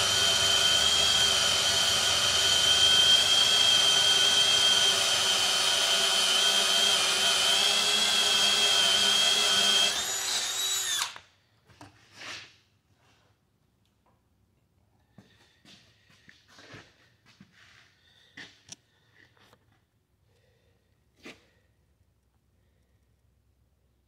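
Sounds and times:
cordless drill whining under load: 0.0 - 11.3.

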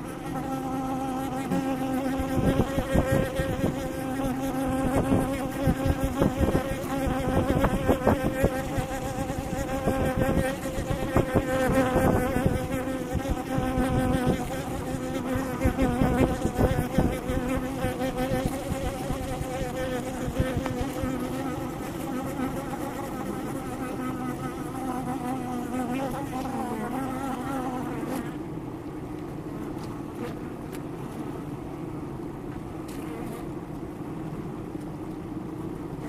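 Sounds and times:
bees buzzing: 0.0 - 28.4.

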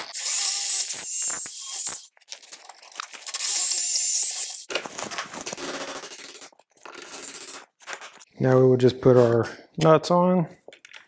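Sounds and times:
cordless drill boring wood: 0.0 - 2.0.

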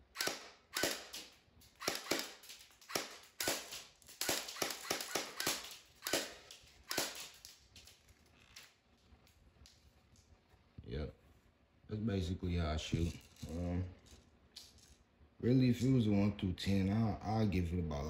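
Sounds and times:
airsoft rifle shots: 0.0 - 7.4.

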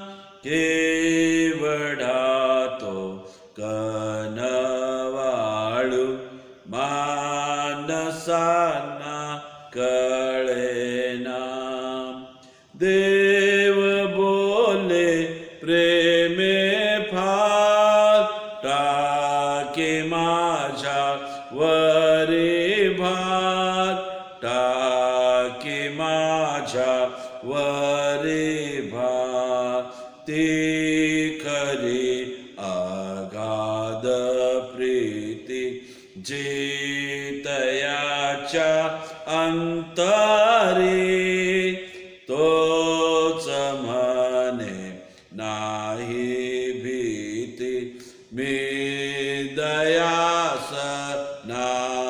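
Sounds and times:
singer breathing: 0.0 - 0.4, 3.2 - 3.6, 6.2 - 6.7, 12.3 - 12.8, 21.2 - 21.6, 27.1 - 27.4, 29.8 - 30.2, 35.8 - 36.2, 38.9 - 39.3, 41.8 - 42.2, 45.0 - 45.4, 47.9 - 48.4
man singing a hymn: 0.0 - 52.0.

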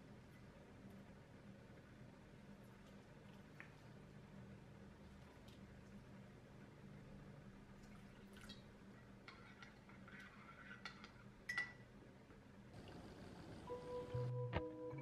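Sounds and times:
spoon clinking against bowl: 11.0 - 11.8.

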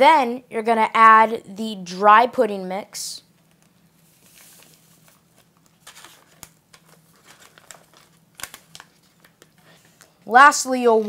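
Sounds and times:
paper pouch crinkling: 3.4 - 10.2.

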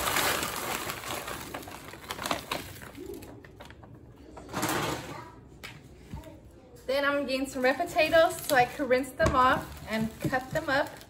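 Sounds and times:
plastic bag crinkling: 0.0 - 3.8, 7.5 - 11.0.

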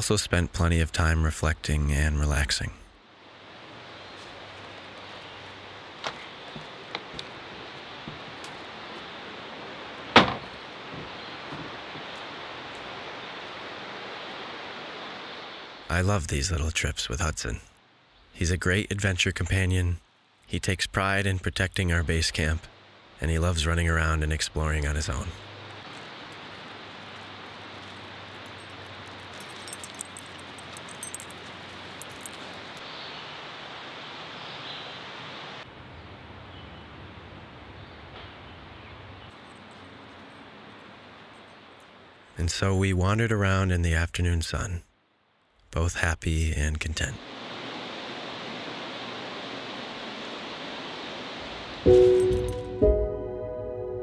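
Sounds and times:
river rushing: 3.0 - 15.9, 25.4 - 35.7, 47.2 - 52.7
sharp knock: 10.2 - 10.5
light jingling clicks: 25.9 - 32.8.

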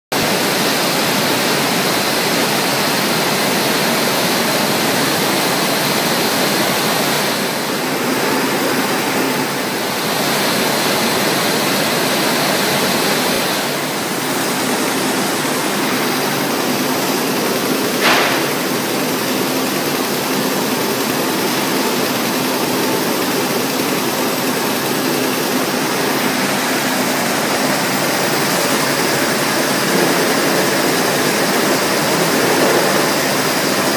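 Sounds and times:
sharp click: 18.0 - 18.6
machine rushing noise: 24.4 - 33.9.

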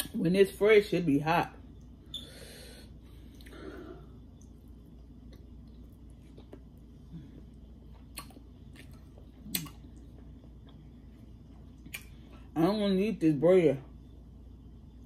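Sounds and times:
person chewing: 4.3 - 12.3
sharp mouth clicks: 9.5 - 9.8, 11.8 - 12.2.

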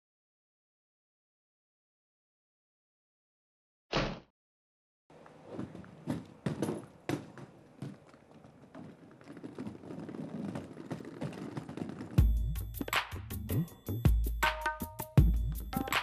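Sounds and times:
heeled footsteps on paving: 5.1 - 12.9
wheeled suitcases rattling: 5.4 - 12.9.

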